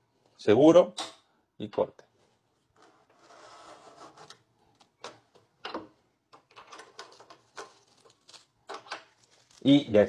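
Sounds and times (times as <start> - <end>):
paper rustling: 6.9 - 10.0.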